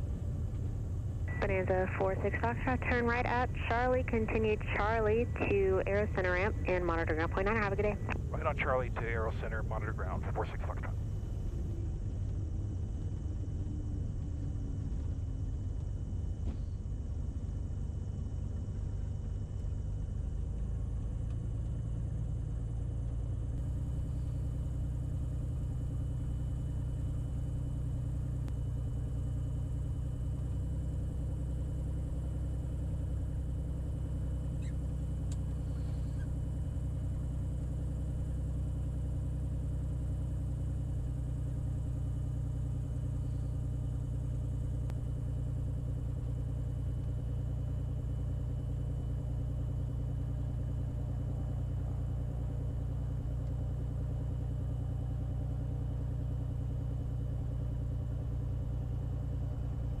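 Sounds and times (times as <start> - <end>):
piston engine and propeller running: 0.0 - 60.0.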